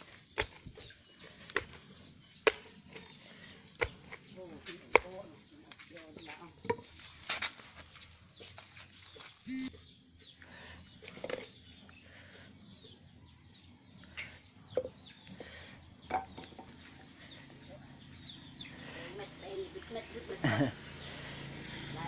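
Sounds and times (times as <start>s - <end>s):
high insect drone: 11.6s - 22.0s.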